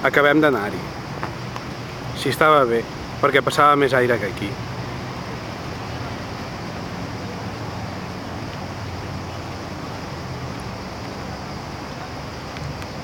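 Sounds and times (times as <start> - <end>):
distant road traffic rumble: 0.0 - 13.0.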